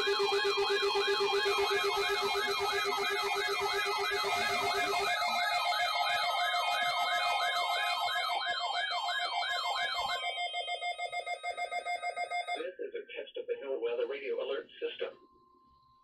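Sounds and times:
warbling siren-like alarm: 0.0s - 12.6s
steady beeping tones: 0.0s - 16.0s.

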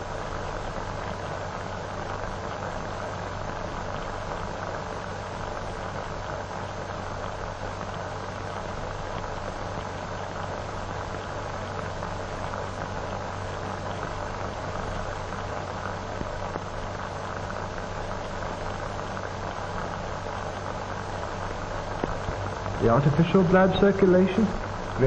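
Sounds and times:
film soundtrack hiss and hum: 0.0s - 25.0s.

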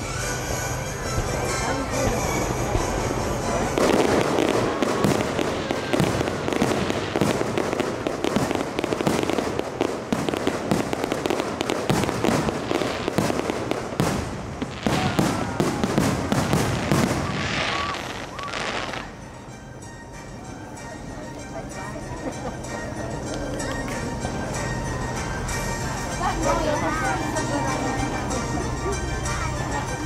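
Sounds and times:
fireworks bangs and crackles: 0.0s - 19.3s.

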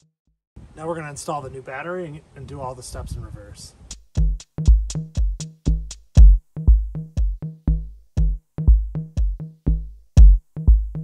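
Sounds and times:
electronic music with drum-machine beat: 3.9s - 11.0s.

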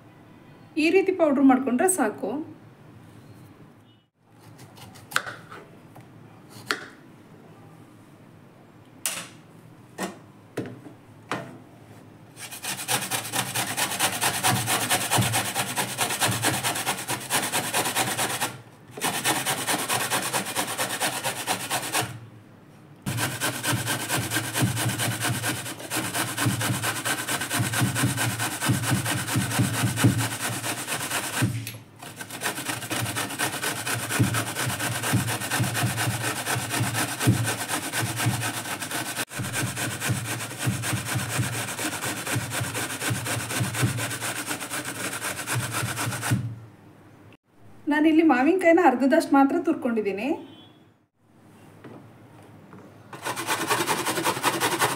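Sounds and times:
grating on a metal grater: 12.4s - 22.2s, 23.1s - 46.4s, 53.2s - 54.9s.

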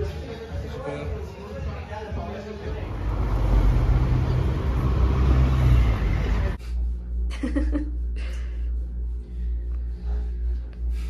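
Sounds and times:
loud rushing rumble: 2.6s - 6.6s.

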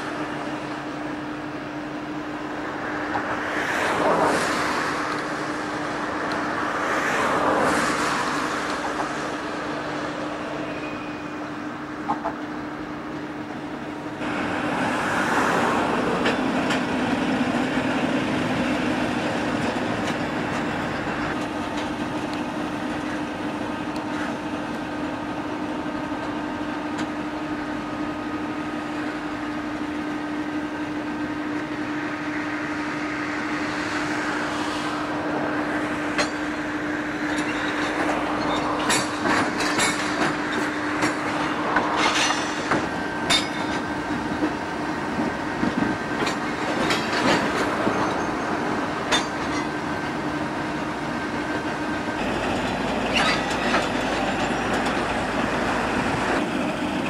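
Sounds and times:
diesel locomotive droning: 0.0s - 57.0s
train wheels clicking over rail joints: 8.0s - 10.9s, 13.1s - 27.6s, 35.9s - 57.0s.

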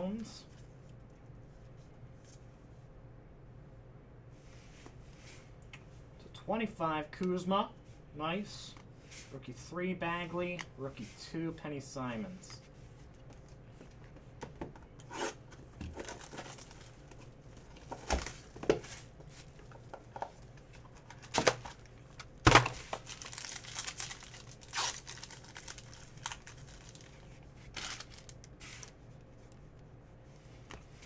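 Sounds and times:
card pack wrapper tearing: 22.5s - 28.9s.

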